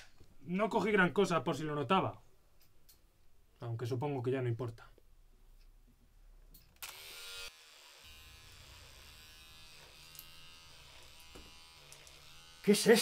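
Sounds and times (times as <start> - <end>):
faint electric buzz with hum: 6.8 - 13.0.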